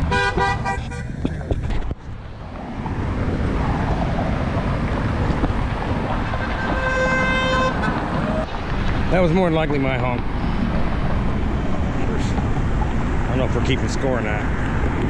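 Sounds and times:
car horns honking: 0.0 - 1.2, 6.2 - 8.5
wind on microphone: 0.0 - 9.1
cars passing: 0.0 - 15.0.

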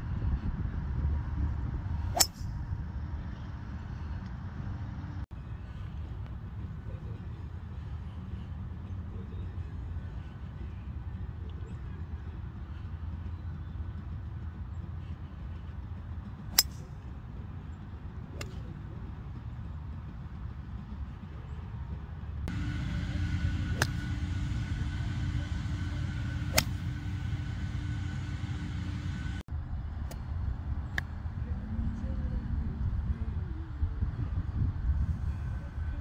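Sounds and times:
low outdoor rumble: 0.0 - 36.0
golf club striking ball: 2.1 - 2.5, 22.5 - 29.4.

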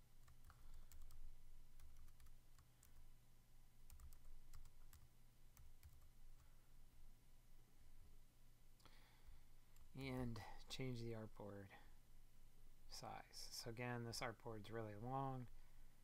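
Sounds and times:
faint keyboard typing: 0.0 - 3.1, 3.8 - 6.7
low steady hum: 0.0 - 16.0.

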